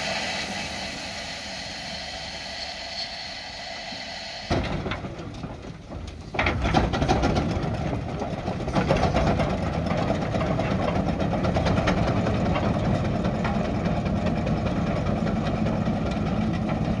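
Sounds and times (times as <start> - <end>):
steam engine beat: 0.0 - 4.9.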